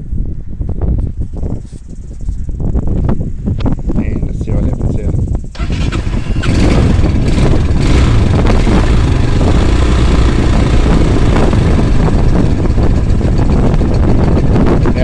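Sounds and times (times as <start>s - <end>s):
motorcycle engine fast idle: 5.6s - 15.0s.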